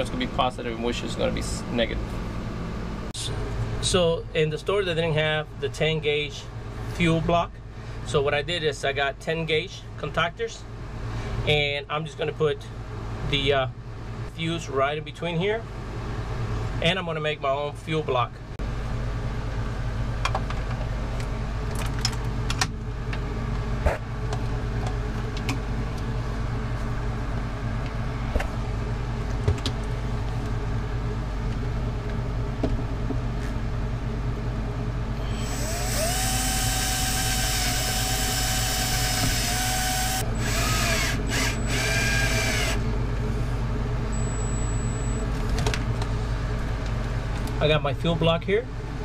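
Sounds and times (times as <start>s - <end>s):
steady low hum: 0.0s - 49.0s
cordless drill running: 35.2s - 42.8s.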